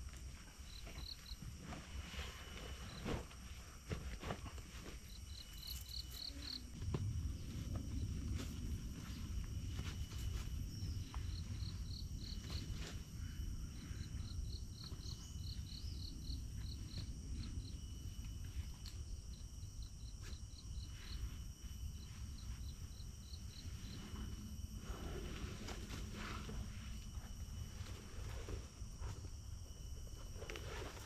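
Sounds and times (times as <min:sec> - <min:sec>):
insect chirps: 0:00.0 - 0:31.0
high-pitched insect drone: 0:05.1 - 0:17.9.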